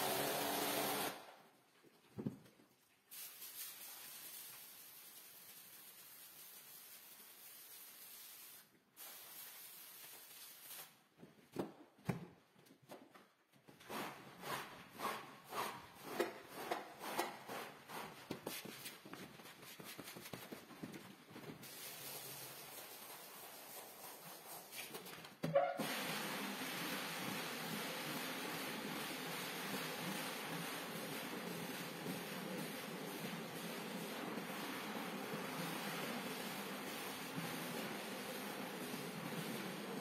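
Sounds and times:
rotary floor scrubber running: 0:00.0 - 0:01.2, 0:25.9 - 0:40.0
squeegee dragging water on rug: 0:13.8 - 0:19.0, 0:21.6 - 0:25.1, 0:25.8 - 0:40.0.

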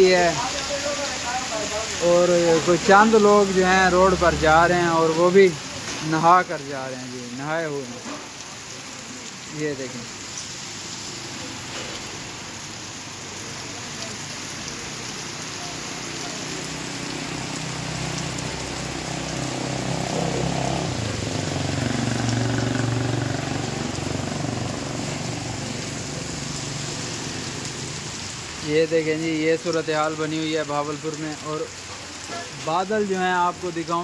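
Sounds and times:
heavy rain falling: 0:00.0 - 0:34.0
vehicle engine passing: 0:16.3 - 0:28.3.

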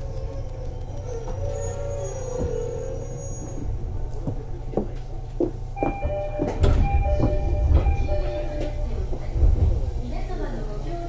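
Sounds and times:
train carriage rumble: 0:00.0 - 0:11.0
knocks and clunks: 0:03.5 - 0:10.0.

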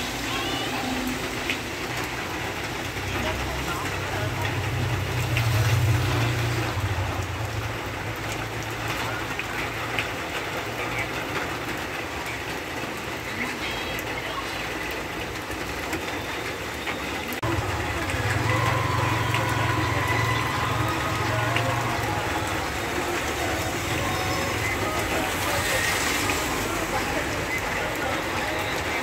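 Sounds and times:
heavy rain on road: 0:00.0 - 0:29.0.

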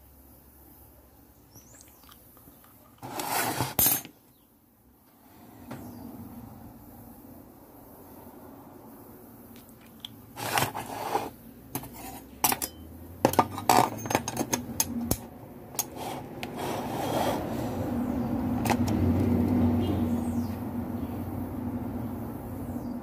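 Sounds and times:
objects clicking and scraping on bench: 0:01.8 - 0:04.2, 0:09.6 - 0:17.8, 0:18.6 - 0:19.6.

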